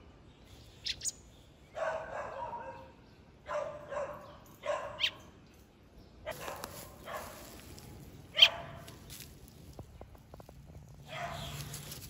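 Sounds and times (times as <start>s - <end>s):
dog yipping: 8.4s - 8.8s.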